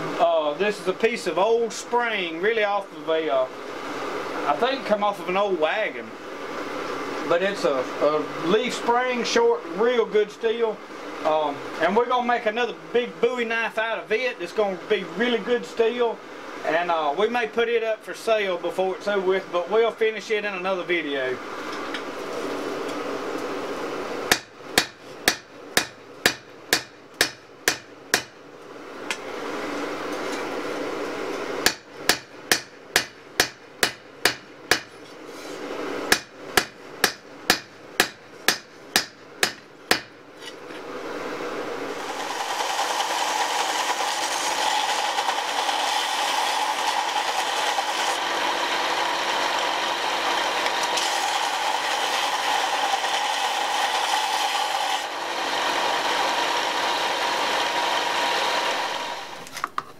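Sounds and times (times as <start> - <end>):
constant hum: 0.0 - 59.9
hammer striking steel on anvil: 24.3 - 28.3, 31.6 - 35.0, 36.1 - 40.6
electric grinder whirring: 41.3 - 59.5.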